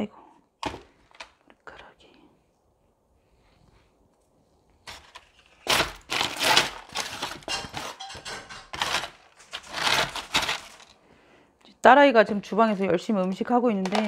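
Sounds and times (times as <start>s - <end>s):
plastic scoop scraping gritty soil: 4.9s - 8.0s, 8.7s - 10.9s.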